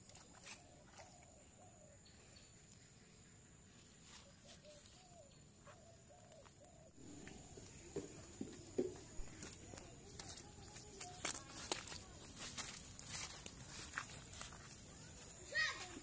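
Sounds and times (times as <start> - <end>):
insects trilling: 6.1 - 16.0.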